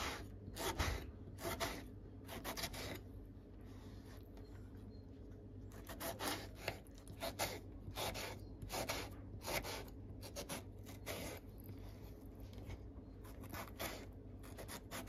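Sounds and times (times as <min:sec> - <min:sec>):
knife slicing tomatoes on wooden board: 0:00.0 - 0:03.0, 0:05.7 - 0:11.4.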